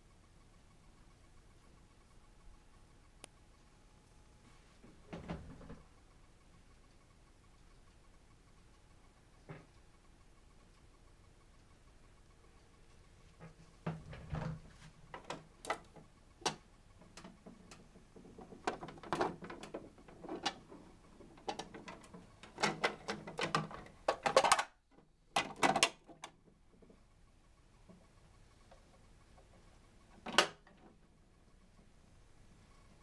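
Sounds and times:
plastic toy mechanism clicking: 15.2 - 16.6, 18.4 - 24.8, 25.4 - 26.4.

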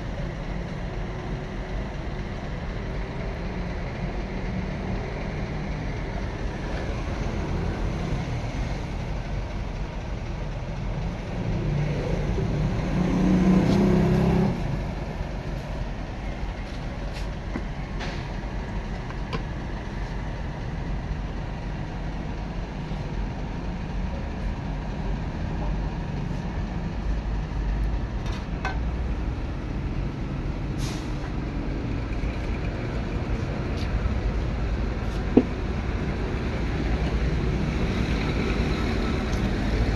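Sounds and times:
street traffic rumble: 0.0 - 39.9
engine passing: 11.0 - 15.8.

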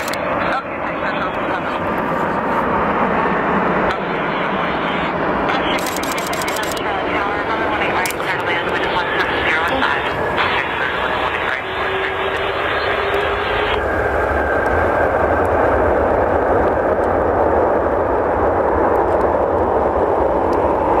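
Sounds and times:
jet engines rumble and rush: 0.0 - 21.0.

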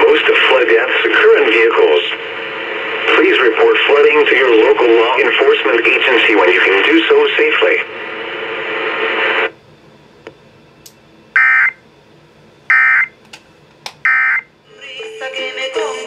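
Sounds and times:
radio static hiss: 0.0 - 9.6
music from radio: 14.7 - 16.0.

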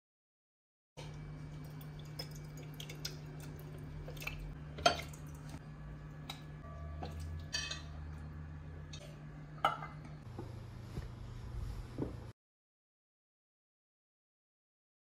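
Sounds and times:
steady low hum: 1.0 - 12.3
ladle clinking against glass: 6.3 - 8.0.

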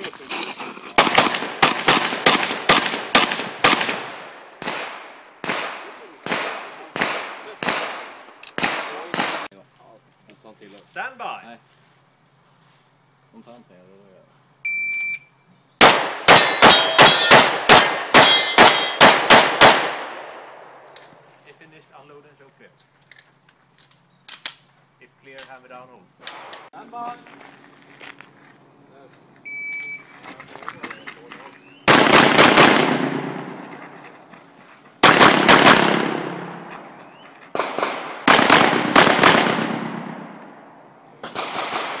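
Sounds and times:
pistol shots: 1.0 - 9.5, 15.8 - 20.5, 31.9 - 33.6, 35.0 - 36.8, 37.5 - 40.4, 41.2 - 42.0
rapid handgun fire with echo: 1.0 - 9.5, 15.8 - 20.3, 31.9 - 33.6, 35.0 - 36.7, 37.5 - 40.2, 41.2 - 42.0
steel targets clanging: 16.3 - 19.1
electronic start beep: 29.5 - 30.1.

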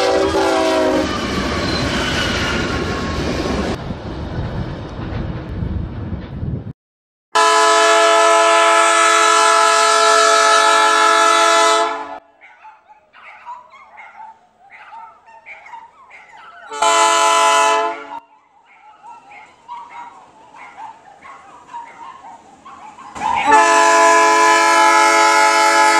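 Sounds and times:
locomotive air horn chord: 0.0 - 1.2, 7.3 - 12.3, 16.7 - 18.2, 23.5 - 25.9
freight cars rolling rumble: 1.0 - 6.7.

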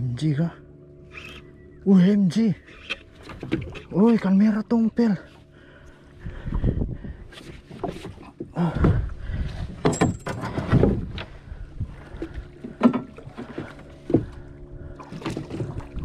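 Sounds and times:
water splashing: 12.0 - 16.0.

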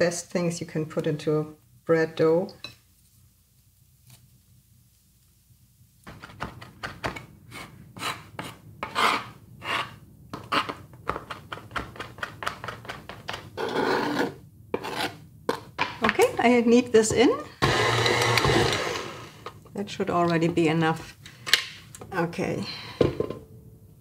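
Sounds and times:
knife scraping board: 7.5 - 11.4, 13.6 - 15.7.

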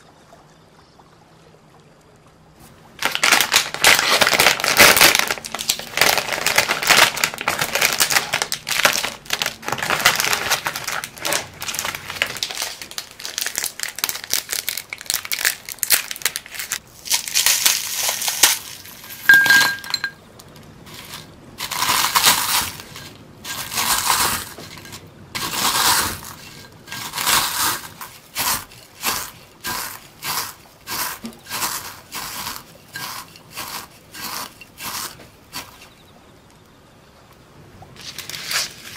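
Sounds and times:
masher crunching wafers: 3.0 - 19.2, 20.8 - 35.9
plastic wrappers crinkling: 3.0 - 35.9, 38.0 - 38.9
clink on glass: 19.2 - 20.2.

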